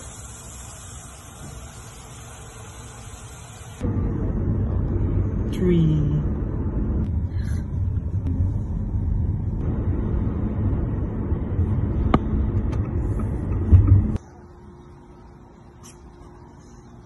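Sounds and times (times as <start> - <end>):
car driving road noise: 3.8 - 14.2.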